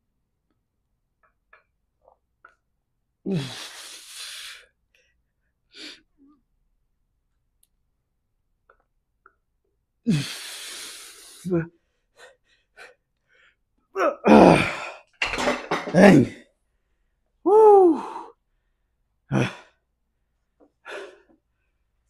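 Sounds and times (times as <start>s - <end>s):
man grunting: 14.0s - 15.0s, 17.5s - 18.3s, 19.3s - 19.7s.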